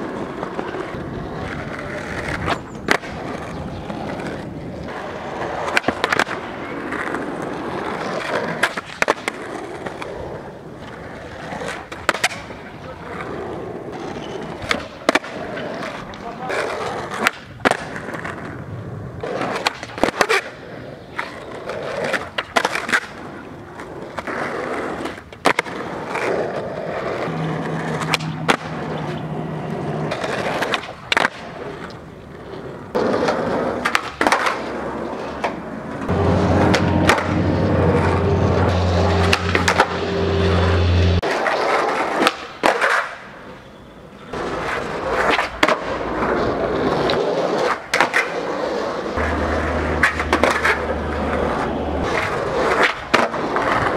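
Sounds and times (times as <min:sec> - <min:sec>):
skateboard pops and clacks: 0:00.0 - 0:10.2, 0:10.8 - 0:13.3, 0:13.9 - 0:18.6, 0:19.2 - 0:29.2, 0:30.0 - 0:37.4, 0:39.2 - 0:39.9, 0:41.2 - 0:43.4, 0:44.3 - 0:49.4, 0:50.0 - 0:53.9
skateboard wheels rolling on asphalt: 0:00.0 - 0:53.9.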